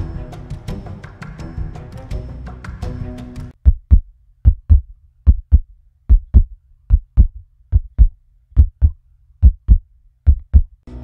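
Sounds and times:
heartbeat thumps: 0:03.5 - 0:10.8.

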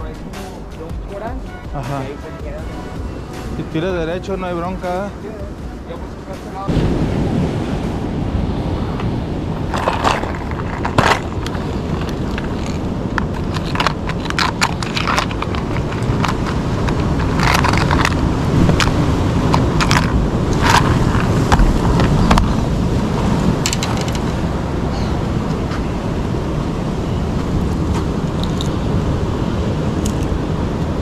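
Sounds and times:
vehicle rumble: 0:00.0 - 0:31.0.

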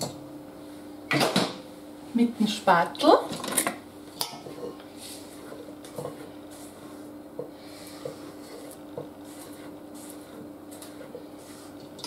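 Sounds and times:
steady hum: 0:00.0 - 0:12.0
spatula scraping batter in metal bowl: 0:05.0 - 0:12.0.

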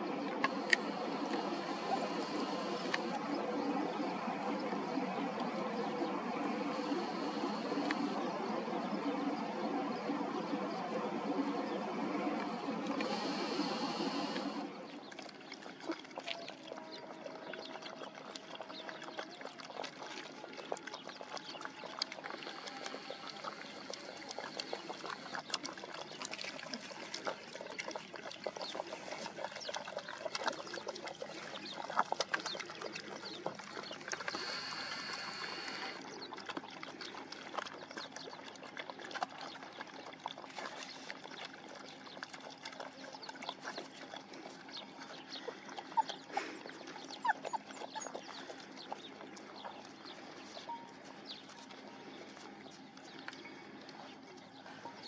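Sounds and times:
puppies lapping water: 0:00.0 - 0:55.0
short hissing noise: 0:13.0 - 0:14.6, 0:34.3 - 0:36.0.

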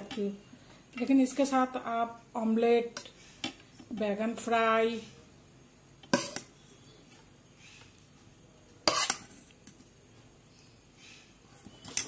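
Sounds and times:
metal spoon clanking on pot: 0:06.1 - 0:06.5.

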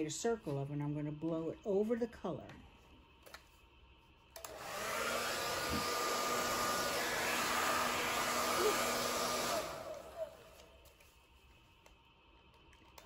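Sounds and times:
hair dryer running: 0:04.4 - 0:11.0.

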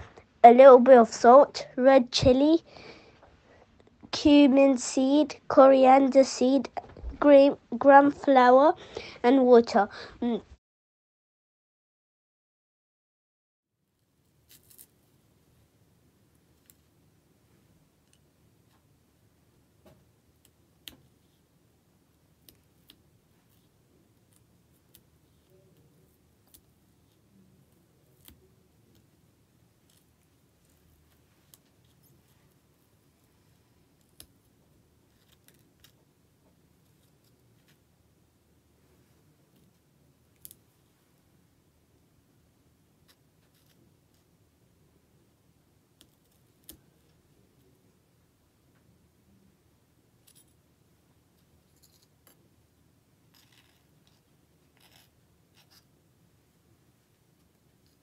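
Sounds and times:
low room hum: 0:13.9 - 0:58.0
small utensils scraping and clicking: 0:53.3 - 0:55.8.

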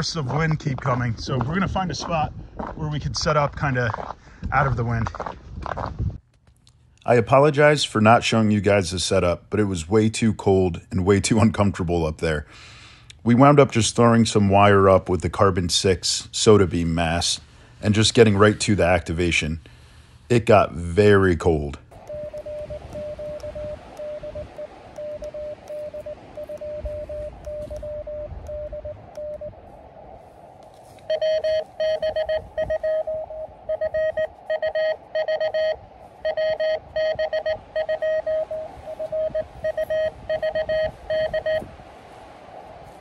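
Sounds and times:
morse code tones: 0:22.0 - 0:29.6, 0:31.0 - 0:41.7.

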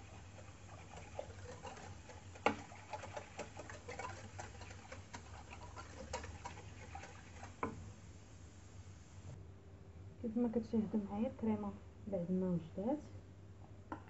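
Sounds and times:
whisk clicking against metal pot: 0:00.0 - 0:07.9.

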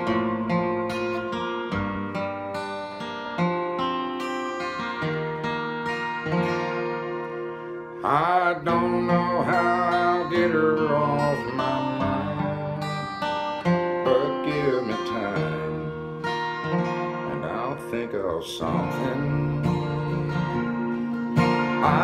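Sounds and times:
acoustic guitar country ballad: 0:00.0 - 0:22.0
man singing: 0:08.0 - 0:22.0.

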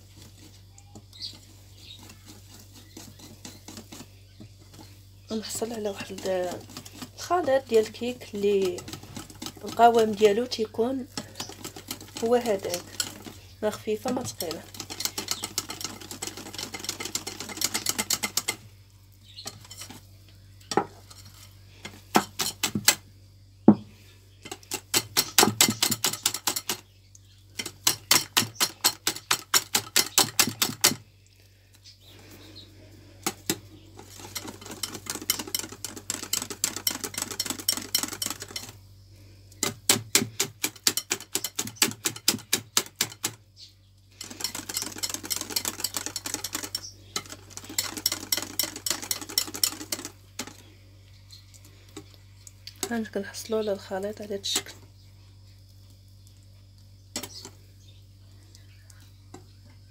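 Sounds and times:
whisk clicking against glass bowl: 0:01.2 - 0:04.1, 0:05.6 - 0:10.3, 0:11.1 - 0:13.4, 0:14.0 - 0:18.6, 0:24.4 - 0:26.8, 0:27.6 - 0:31.0, 0:33.2 - 0:38.8, 0:39.6 - 0:43.4, 0:44.2 - 0:50.6.

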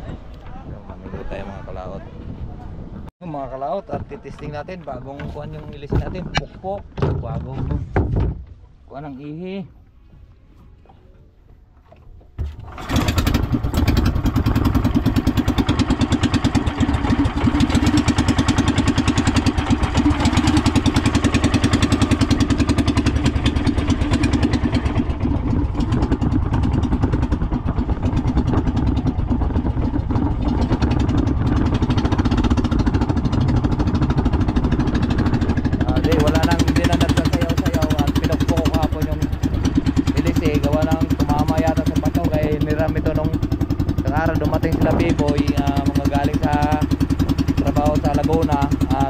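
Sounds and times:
boat engine starting and running: 0:00.0 - 0:49.0.

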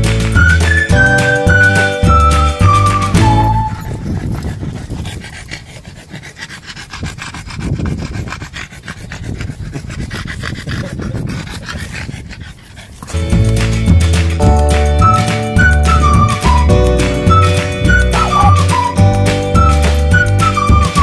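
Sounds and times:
dog panting and sniffing: 0:02.8 - 0:14.5
rubbing and scuffing on microphone: 0:03.6 - 0:05.7.

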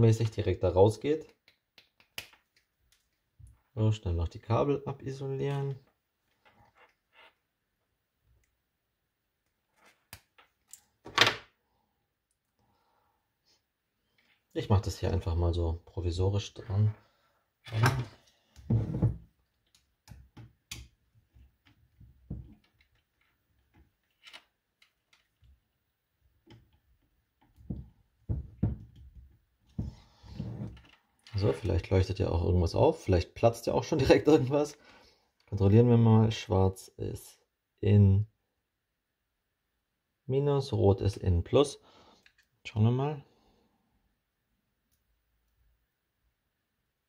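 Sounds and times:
clicks and taps of handling wires: 0:01.2 - 0:03.6, 0:19.6 - 0:25.6, 0:27.4 - 0:30.0.

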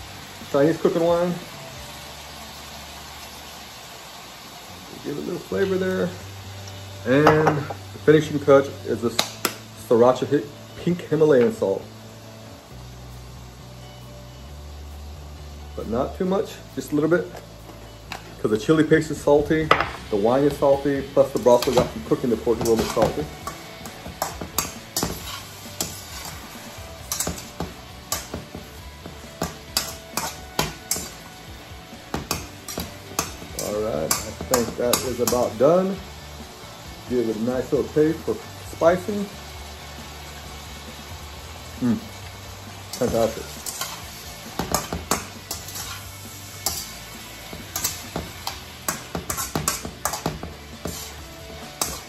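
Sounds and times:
food sizzling faintly: 0:00.0 - 0:52.0
metal spatula scraping a wok: 0:19.4 - 0:35.8, 0:42.2 - 0:52.0
metal spatula clanking on wok: 0:27.1 - 0:28.4, 0:29.4 - 0:31.2, 0:42.9 - 0:44.0, 0:44.6 - 0:46.0, 0:46.6 - 0:47.0, 0:47.6 - 0:51.1, 0:51.7 - 0:52.0.

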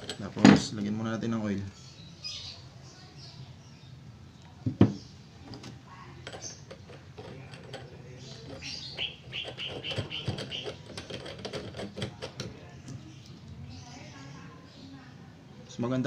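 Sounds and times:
clicks and rubbing of parts: 0:04.9 - 0:13.6.

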